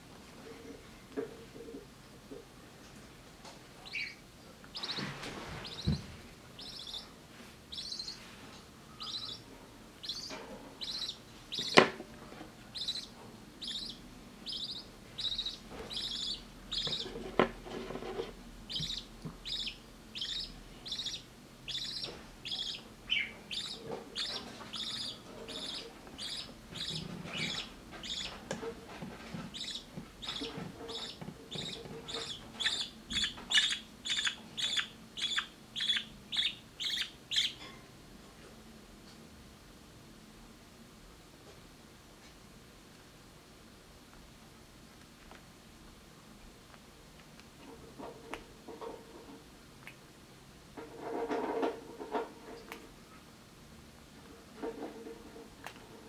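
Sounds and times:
chick cheeping: 0:06.6 - 0:07.1, 0:08.9 - 0:11.8, 0:12.8 - 0:17.1, 0:18.7 - 0:28.4, 0:29.6 - 0:37.7.

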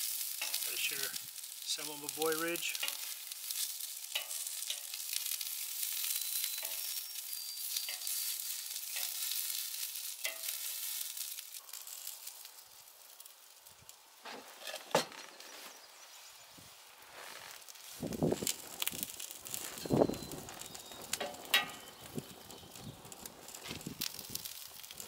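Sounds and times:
sausages sizzling on griddle: 0:00.0 - 0:25.0
metal tongs scraping griddle: 0:00.1 - 0:11.4, 0:14.3 - 0:15.4, 0:18.9 - 0:22.2.

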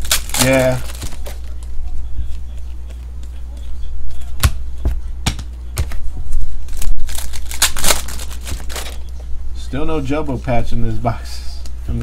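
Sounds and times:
foil wrapper tearing: 0:00.0 - 0:01.6, 0:06.7 - 0:09.0.

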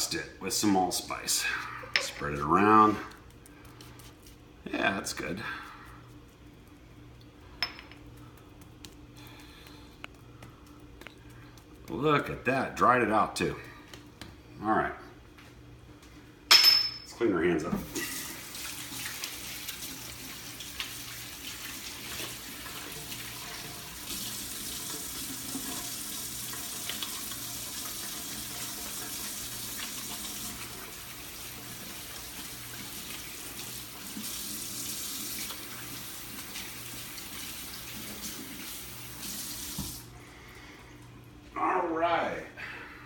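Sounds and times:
tap water running into sink: 0:17.8 - 0:40.1.

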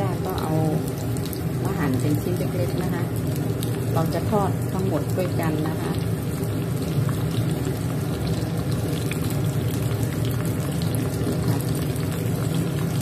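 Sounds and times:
vegetables frying in oil: 0:00.0 - 0:13.0.

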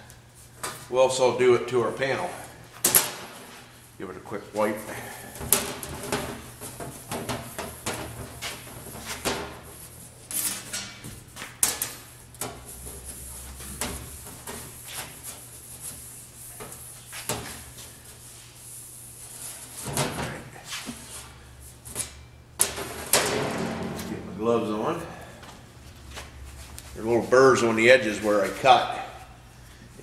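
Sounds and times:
low steady hum: 0:17.6 - 0:30.0.

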